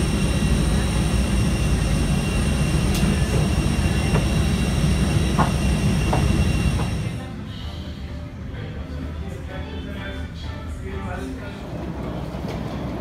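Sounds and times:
high-pitched whines: 0:00.0 - 0:07.2
aircraft cabin low rumble: 0:00.0 - 0:07.4.

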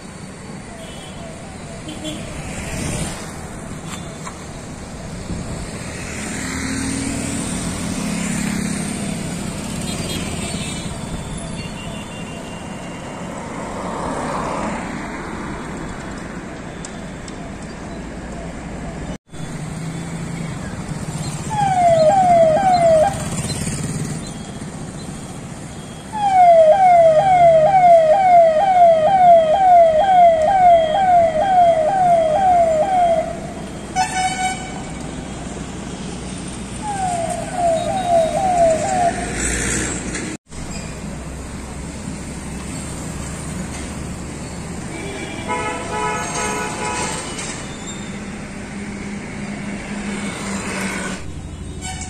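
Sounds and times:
distant traffic hum: 0:00.0 - 0:52.0
vehicle siren sweeping: 0:18.8 - 0:34.2, 0:36.7 - 0:39.9.

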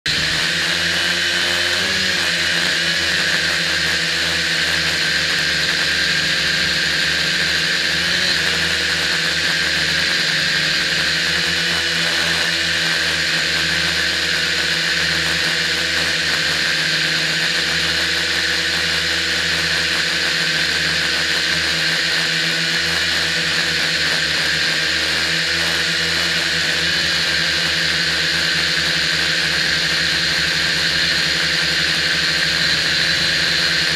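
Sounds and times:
quadcopter propellers whirring: 0:00.0 - 0:33.9.

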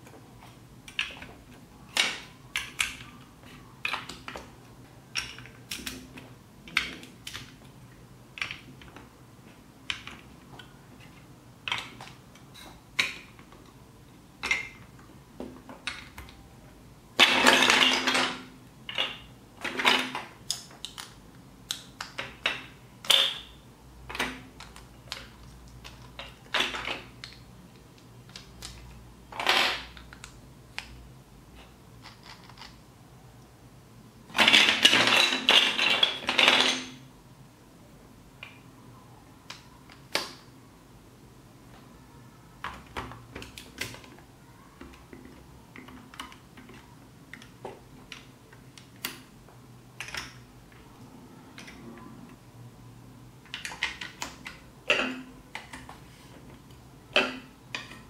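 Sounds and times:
plastic blocks clicking and knocking: 0:00.0 - 0:09.1, 0:09.8 - 0:13.8, 0:14.4 - 0:16.4, 0:17.2 - 0:23.5, 0:24.1 - 0:31.0, 0:31.6 - 0:32.9, 0:34.3 - 0:37.0, 0:39.4 - 0:40.5, 0:42.6 - 0:49.3, 0:50.0 - 0:52.4, 0:53.4 - 0:58.0
plastic parts clattering: 0:17.2 - 0:23.5, 0:31.6 - 0:32.8, 0:34.3 - 0:37.0.

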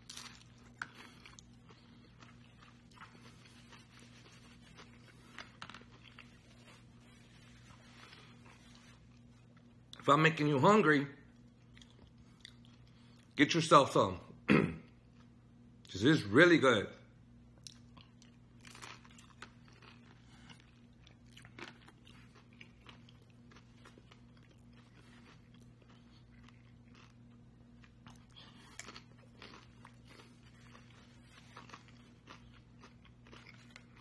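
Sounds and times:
crunching and chewing: 0:00.0 - 0:10.1, 0:11.2 - 0:13.4, 0:17.5 - 0:34.0
low electrical hum: 0:00.0 - 0:34.0.

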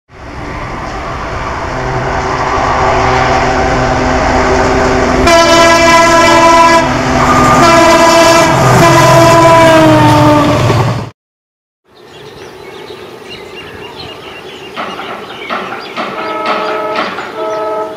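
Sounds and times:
diesel locomotive engine: 0:00.1 - 0:11.1, 0:12.0 - 0:17.9
multi-tone air horn blasts: 0:01.8 - 0:04.1, 0:05.2 - 0:10.6, 0:16.2 - 0:17.9
train wheel noise: 0:13.7 - 0:17.9.

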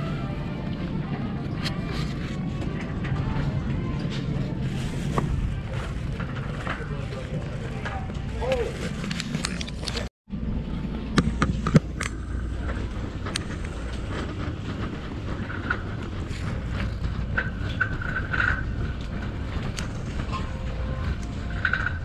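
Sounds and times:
shopping cart wheels rumbling: 0:00.0 - 0:22.0.

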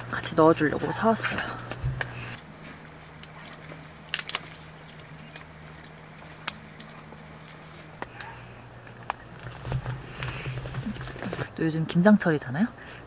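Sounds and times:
plastic pouch crinkling: 0:03.1 - 0:08.1.

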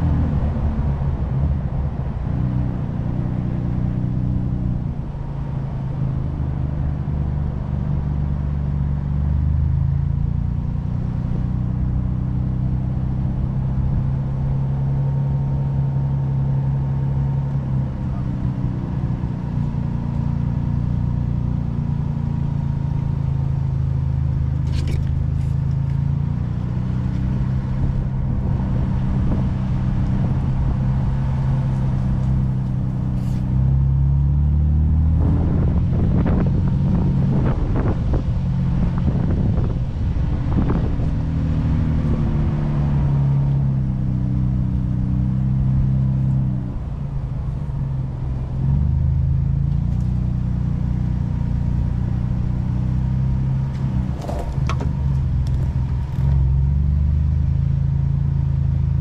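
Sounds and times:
engine running: 0:00.0 - 0:59.0
vehicle knocks and rattles: 0:53.7 - 0:56.4.

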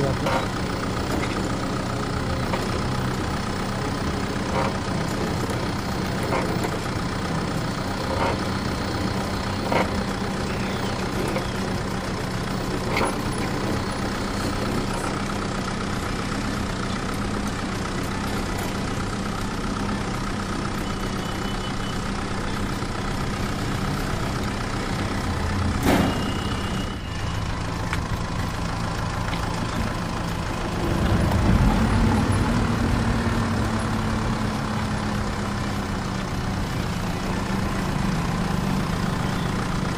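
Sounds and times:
electric tractor hum: 0:00.0 - 0:39.9
trailer rattling: 0:00.0 - 0:39.9
trailer knocks: 0:25.7 - 0:26.9.

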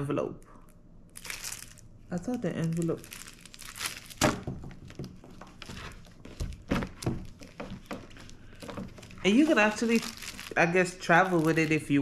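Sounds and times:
binder knocks and thuds: 0:04.2 - 0:05.5, 0:06.4 - 0:08.1
paper rustling and scraping: 0:05.4 - 0:10.6.

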